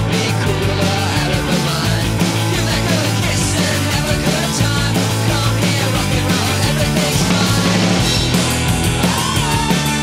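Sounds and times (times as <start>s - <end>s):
rock music drum beat: 0.0s - 10.0s.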